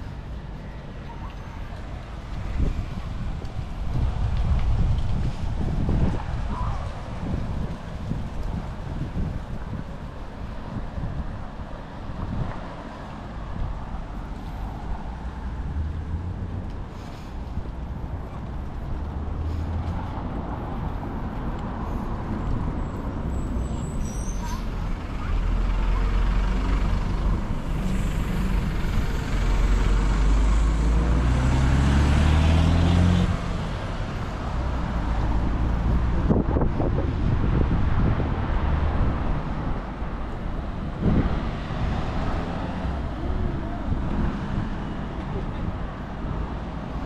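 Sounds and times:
road traffic: 0.0 - 47.0
vehicle engine revving: 25.6 - 33.7.

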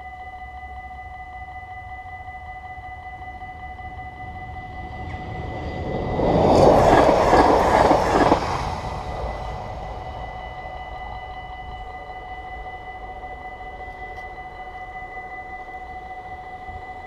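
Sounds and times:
level crossing warning bells: 0.0 - 17.0
electric train passing: 1.8 - 17.0
train wheel clacks: 5.0 - 9.8.

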